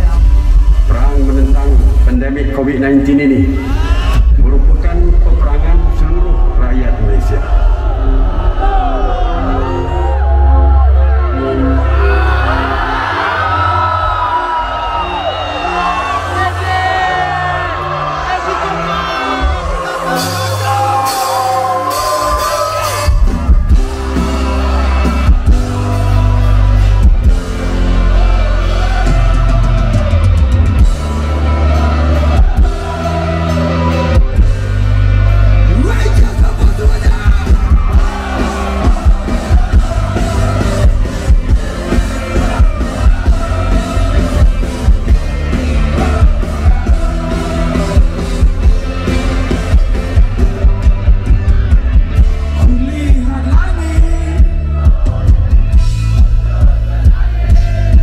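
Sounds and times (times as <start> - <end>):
bass: 0.0 - 58.0
drum beat: 36.1 - 58.0.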